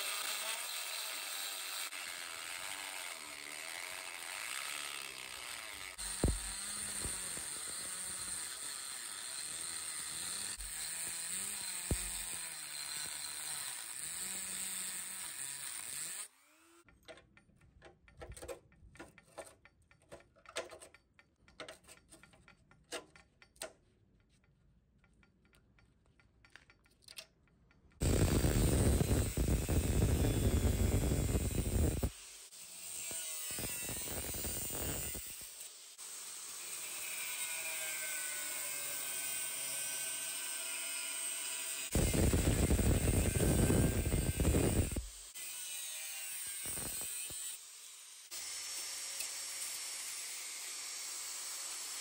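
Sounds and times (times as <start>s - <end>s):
angle grinder cutting sheet steel: 0.0s - 16.9s, 28.0s - 52.0s
rotary tool stopping: 0.2s - 16.9s, 28.0s - 32.1s, 41.5s - 45.3s.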